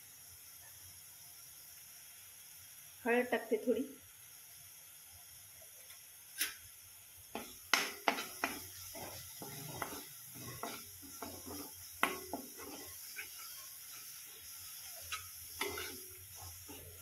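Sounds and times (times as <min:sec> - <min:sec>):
paste sizzling: 0:06.2 - 0:17.0
spatula scraping a pan: 0:07.4 - 0:17.0.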